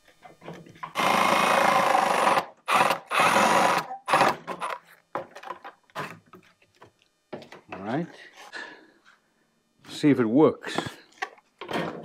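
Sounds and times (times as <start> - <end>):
cordless drill boring into plastic pipe: 0.9 - 4.8.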